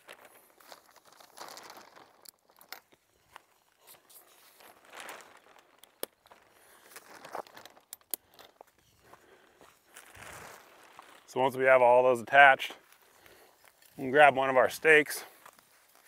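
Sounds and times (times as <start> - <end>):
tent fabric rustling: 0.0 - 7.9, 8.6 - 11.9, 14.9 - 16.0.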